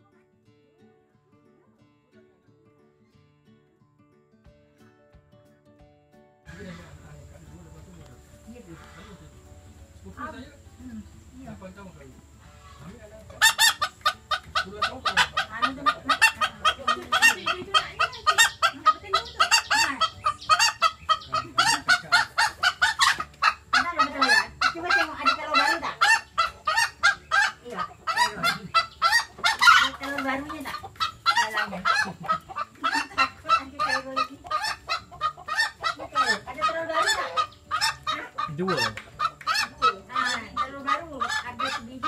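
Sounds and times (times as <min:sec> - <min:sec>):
hens cackling: 0:06.5 - 0:11.6, 0:12.2 - 0:42.0.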